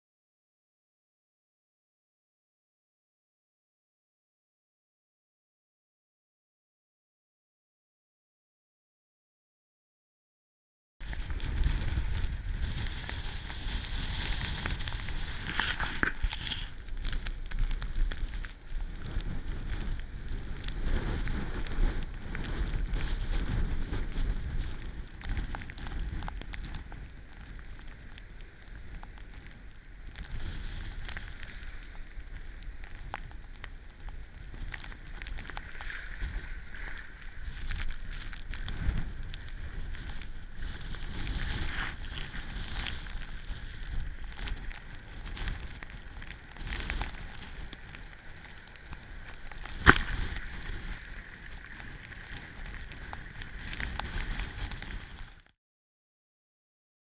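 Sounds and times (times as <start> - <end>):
wind buffeting microphone: 11.0 - 55.2
floodwater churning and rushing: 44.4 - 55.0.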